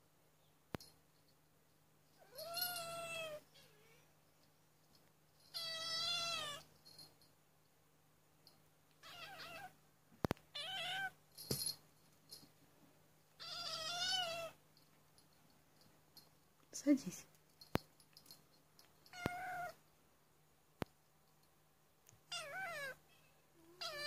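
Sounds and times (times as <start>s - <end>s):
kitten meowing: 9.0s - 9.7s, 10.6s - 11.1s, 13.4s - 14.6s, 19.1s - 19.8s, 22.3s - 23.0s, 23.7s - 24.0s.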